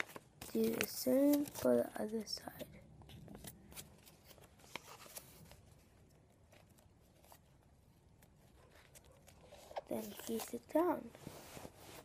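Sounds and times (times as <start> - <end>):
paper being folded: 0.0 - 2.4, 3.1 - 12.0.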